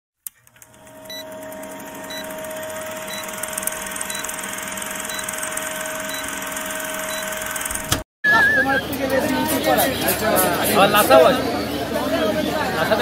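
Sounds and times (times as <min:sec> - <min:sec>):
movie projector rattling: 0:00.4 - 0:08.0
steady hum: 0:00.6 - 0:08.0.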